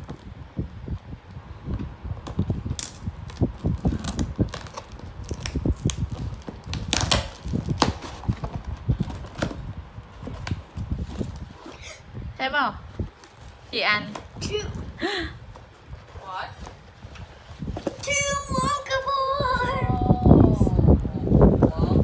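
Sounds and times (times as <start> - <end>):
paper crinkling and tape ripping: 2.2 - 11.8.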